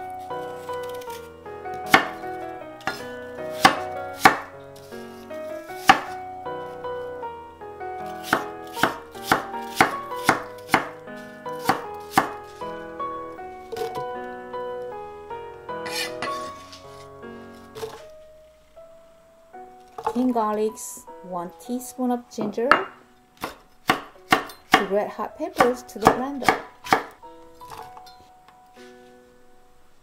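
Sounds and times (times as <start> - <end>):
soft background music: 0.0 - 30.0
knife chopping on cutting board: 1.9 - 2.2, 2.9 - 4.5, 5.8 - 6.2, 8.2 - 11.0, 11.6 - 12.4, 15.9 - 16.6, 22.7 - 24.9, 25.6 - 27.9.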